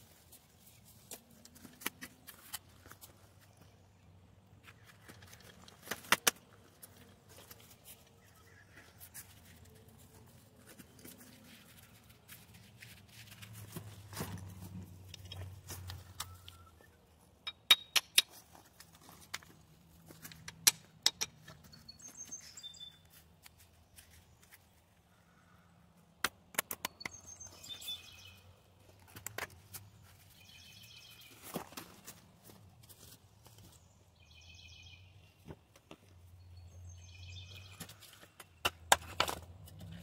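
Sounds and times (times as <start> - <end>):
sharp knocks and clicks: 20.3 - 21.7, 26.2 - 27.2
high bird chirps: 21.7 - 23.0, 26.9 - 28.5.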